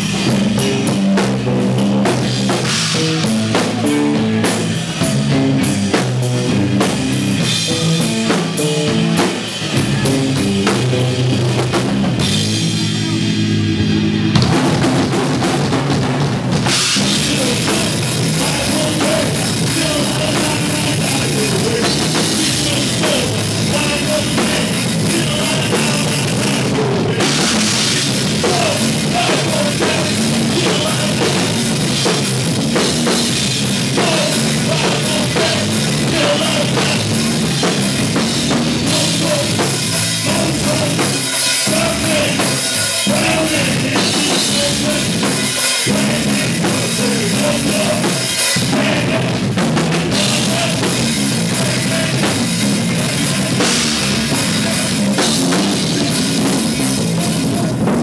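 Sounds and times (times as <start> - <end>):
distorted bass or guitar: 0.0 - 58.0
drum kit with crashing cymbals: 0.0 - 58.0
person singing or shouting: 17.0 - 31.8, 33.6 - 58.0.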